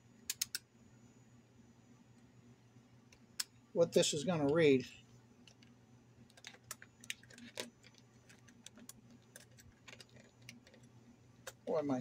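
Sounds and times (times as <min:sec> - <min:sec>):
small parts clicking and tapping: 0:00.3 - 0:00.7, 0:05.4 - 0:11.7.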